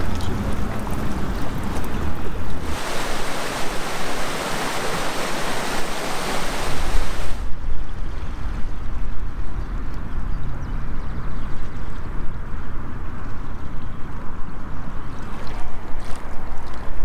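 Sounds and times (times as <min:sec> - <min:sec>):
water lapping: 0:00.0 - 0:07.5, 0:15.2 - 0:17.0
stream splashing over rocks: 0:00.0 - 0:07.6, 0:15.2 - 0:17.0
wind buffeting microphone: 0:00.0 - 0:17.0.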